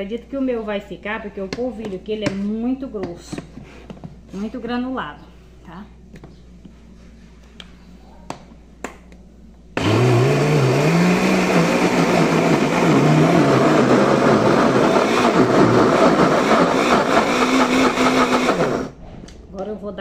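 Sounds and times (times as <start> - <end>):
blender motor running: 9.8 - 18.9.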